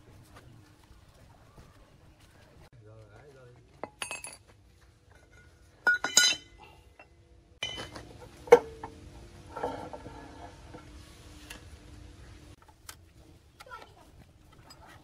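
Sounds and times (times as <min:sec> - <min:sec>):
steel parts clinking: 0:03.8 - 0:04.5, 0:05.1 - 0:08.9.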